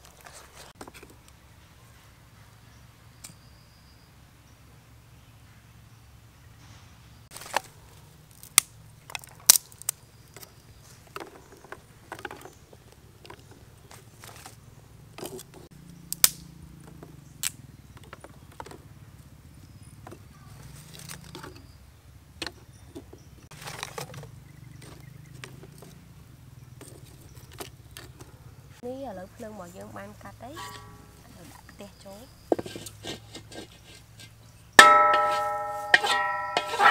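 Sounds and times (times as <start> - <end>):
wood sticks clicking and knocking: 7.3 - 14.6, 32.5 - 36.9.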